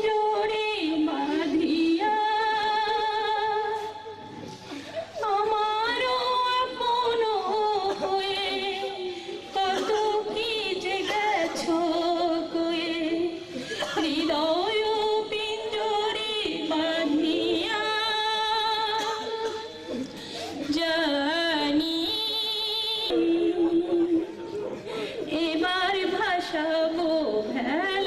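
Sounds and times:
woman singing slow melody: 0.0 - 4.0.

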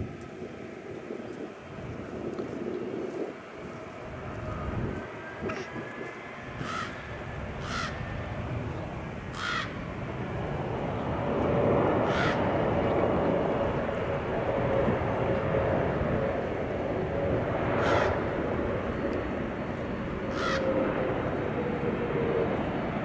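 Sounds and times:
jet engines rumbling: 0.0 - 23.0
steady engine whine: 0.0 - 23.0
birds giving harsh calls: 6.6 - 8.0, 9.3 - 9.8, 12.0 - 12.4, 17.8 - 18.2, 20.3 - 20.7.

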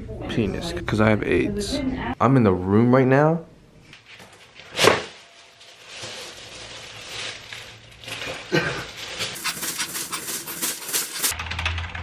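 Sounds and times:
exam table paper crinkling: 4.0 - 11.4.

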